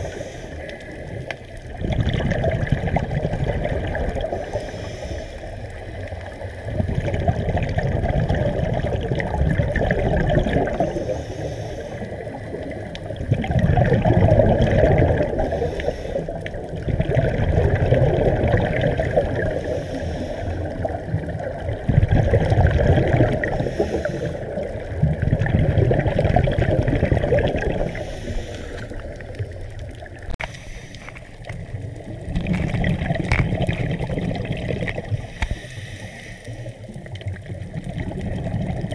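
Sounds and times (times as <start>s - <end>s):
rushing gurgling water: 0.0s - 38.9s.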